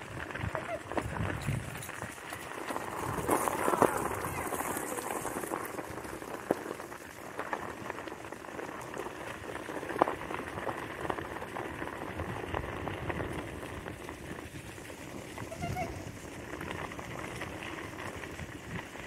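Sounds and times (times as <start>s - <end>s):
wheels crunching over leaves and gravel: 0.0s - 19.0s.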